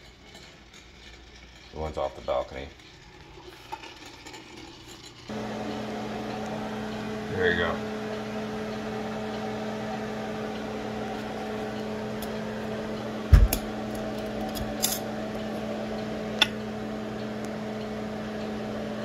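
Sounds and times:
motor humming: 5.3 - 19.0
heavy thump: 13.3 - 13.6.

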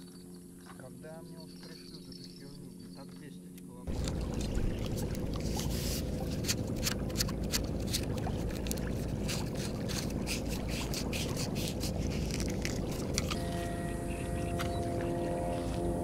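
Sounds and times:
wind rumbling on microphone: 3.9 - 16.0.

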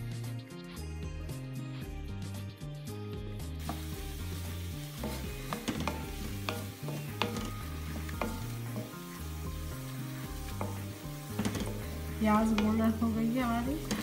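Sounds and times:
onions sizzling in oil: 3.4 - 14.0
wooden spatula scraping pan: 3.6 - 14.0.

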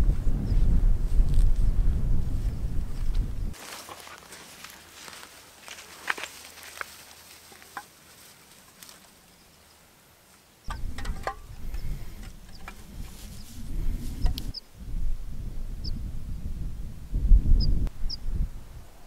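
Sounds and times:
wind rumble on microphone: 0.0 - 3.6, 10.7 - 19.0
cans knocking against stones: 10.7 - 13.2.

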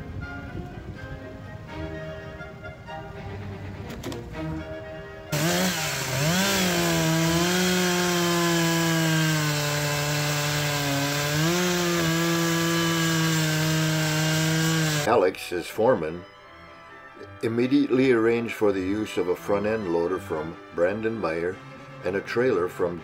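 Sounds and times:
soft background music: 0.0 - 5.4, 15.1 - 23.0
chainsaw revving and cutting: 5.3 - 15.1.

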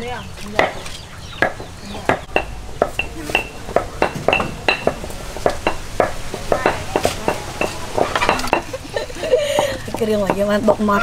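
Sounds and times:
iron wok metallic knocks and scrapes: 1.4 - 8.8.

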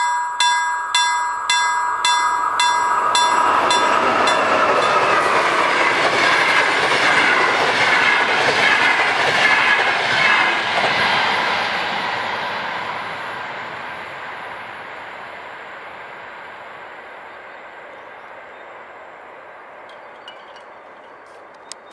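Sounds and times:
train wheels clattering on rails: 2.3 - 11.6.

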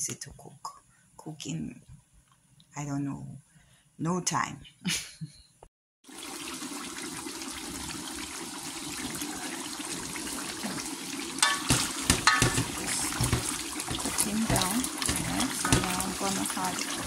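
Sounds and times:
stew bubbling in a pot: 6.0 - 17.0
knocks and pops from pot: 11.4 - 16.4.

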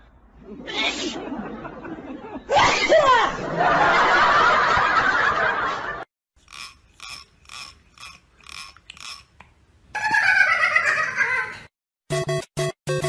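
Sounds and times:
finger rattling comb teeth: 6.4 - 9.4.

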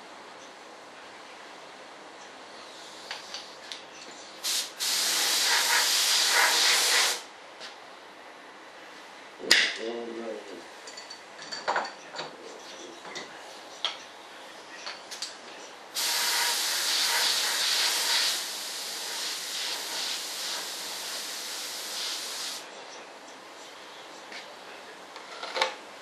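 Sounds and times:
paint spray gun hissing: 4.4 - 7.2, 16.0 - 22.7.

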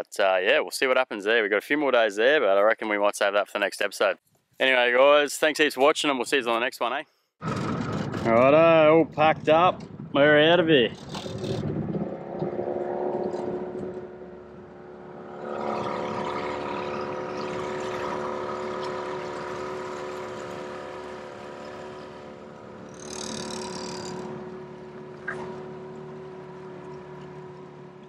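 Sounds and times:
outboard motor running: 11.1 - 28.0.

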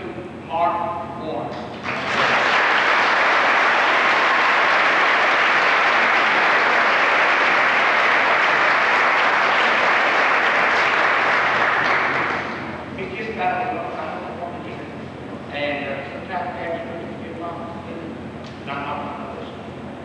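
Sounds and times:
audience applauding: 1.8 - 12.8.

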